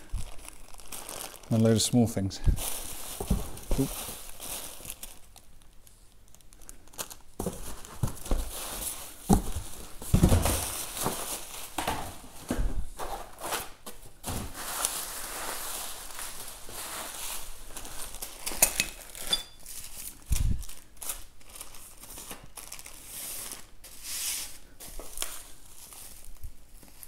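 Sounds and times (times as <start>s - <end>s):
bubble wrap and plastic bags crinkling: 0.0s - 27.0s
cardboard box thuds: 9.2s - 11.2s.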